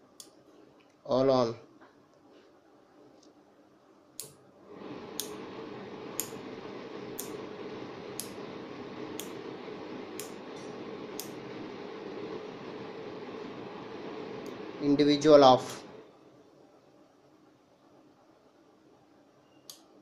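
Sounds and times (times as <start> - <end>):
exhaust fan motor running: 4.6 - 16.1.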